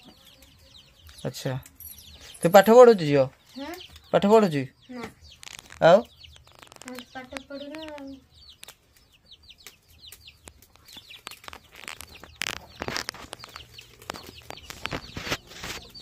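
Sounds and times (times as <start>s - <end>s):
chicks peeping: 0.0s - 16.0s
brief rustles: 10.7s - 16.0s.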